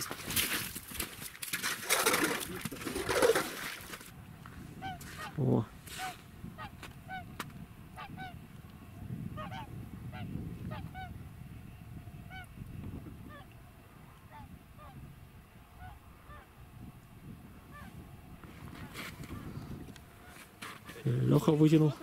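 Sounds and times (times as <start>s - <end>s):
swans trumpeting: 4.8s - 7.3s.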